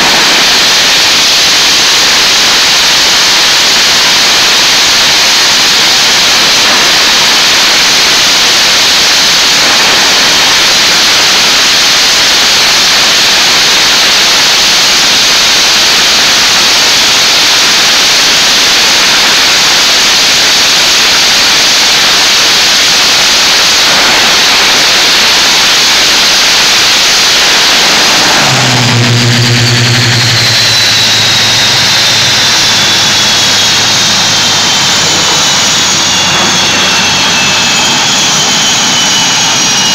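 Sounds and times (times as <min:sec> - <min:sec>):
jets passing overhead: 0:00.0 - 0:08.3, 0:23.0 - 0:39.9
high whine falling in pitch: 0:00.0 - 0:39.9
jet engine roaring: 0:00.0 - 0:39.9.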